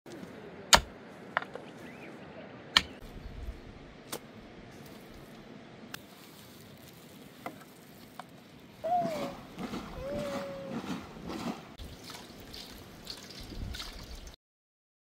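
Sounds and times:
pickaxe striking dry ground: 0.7 - 0.9.

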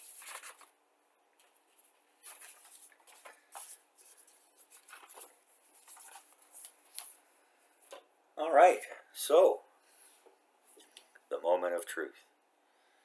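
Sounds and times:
paper sheet rustling: 0.0 - 0.8, 1.4 - 7.2.

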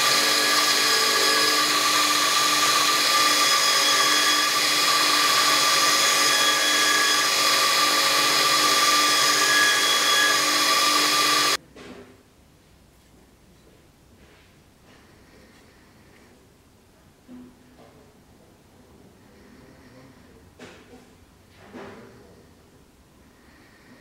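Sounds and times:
belt grinder grinding metal: 0.0 - 11.6.

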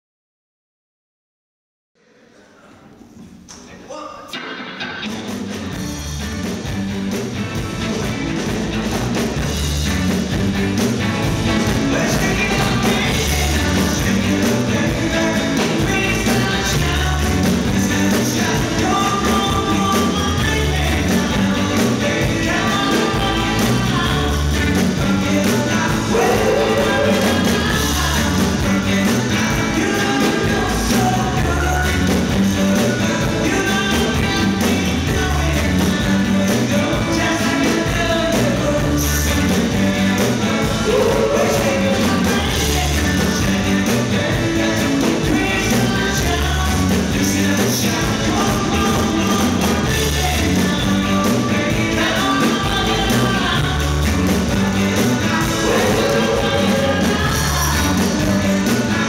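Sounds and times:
live rock band playing: 4.3 - 59.0
person singing: 11.8 - 59.0.

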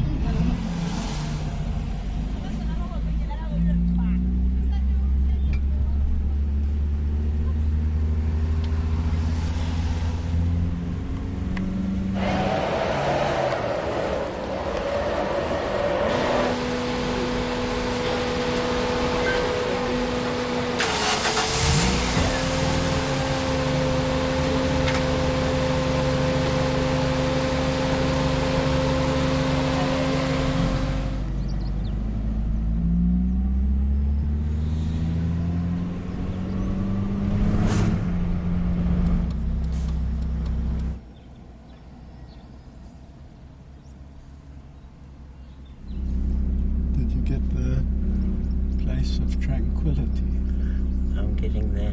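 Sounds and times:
car engine accelerating: 0.0 - 42.7, 43.3 - 51.9
road noise: 0.0 - 51.9
held whine: 8.6 - 31.6.

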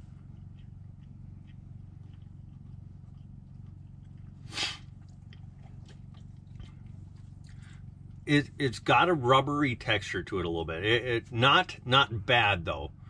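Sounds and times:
person chewing: 0.0 - 8.2
low hum: 0.0 - 13.0
sharp exhale or sniff: 4.5 - 4.8.

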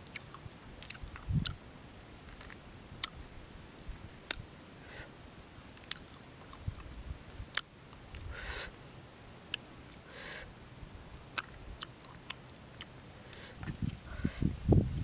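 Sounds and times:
mouth clicks and smacks: 0.0 - 1.6, 5.8 - 6.9, 11.3 - 15.0
person chewing: 0.0 - 1.6, 5.8 - 6.9, 11.3 - 14.0
soft hiss: 0.0 - 15.0.

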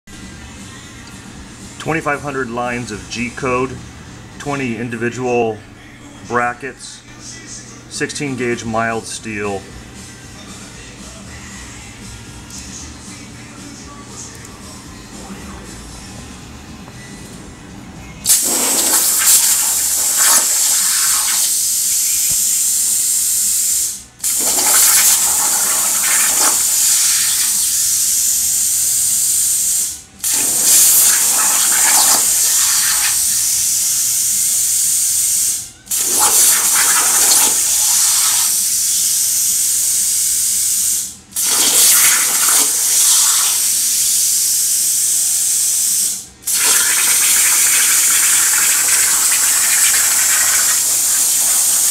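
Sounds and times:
plasma torch hissing: 18.2 - 51.9.

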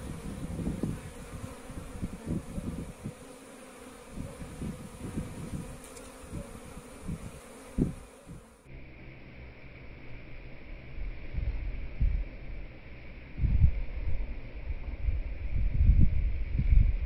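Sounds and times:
honeybees buzzing: 0.0 - 11.8.

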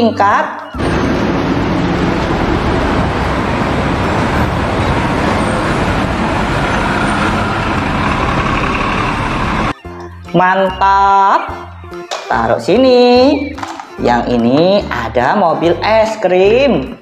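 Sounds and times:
road traffic noise: 0.7 - 9.8
bus engine rumbling: 0.8 - 9.8.

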